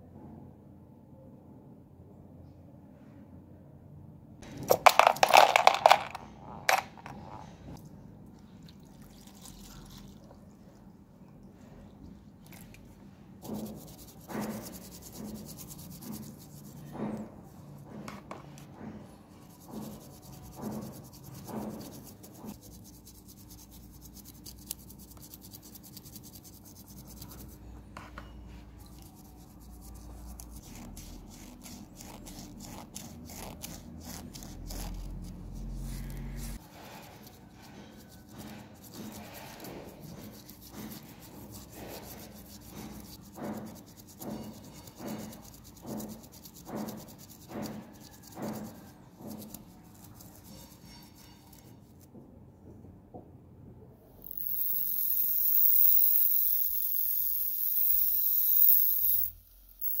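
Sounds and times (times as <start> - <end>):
wire wheel grinder hissing: 54.2 - 60.0.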